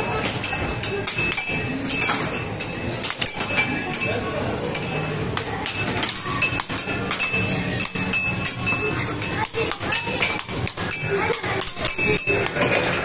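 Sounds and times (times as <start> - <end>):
arcade machine tones: 0.0 - 13.0
background chatter: 0.0 - 13.0
air hockey puck clacking: 4.7 - 13.0.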